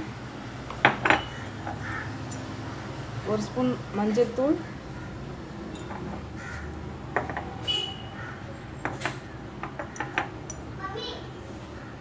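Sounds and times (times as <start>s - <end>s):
spoon clinking against metal: 1.1s - 2.6s, 5.7s - 6.1s, 9.8s - 10.7s.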